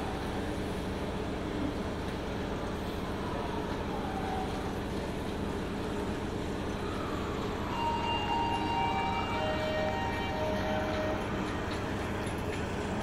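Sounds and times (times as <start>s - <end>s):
escalator machine hum: 4.7s - 13.0s.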